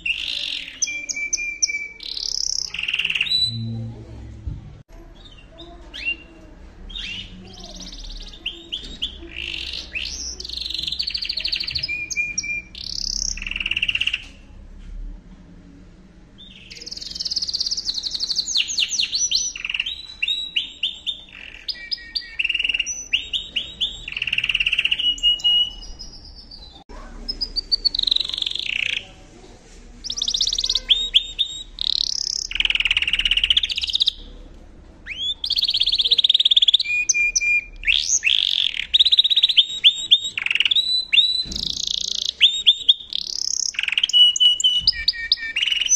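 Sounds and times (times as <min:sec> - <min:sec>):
canary singing trills: 0:00.0 - 0:04.1, 0:05.0 - 0:14.4, 0:16.4 - 0:29.2, 0:30.0 - 0:34.4, 0:35.0 - 0:45.9.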